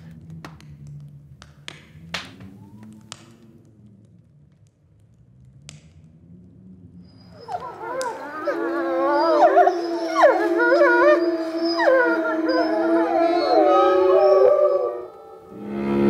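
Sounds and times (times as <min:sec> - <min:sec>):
wolves howling: 0:02.4 - 0:03.7, 0:07.0 - 0:16.0.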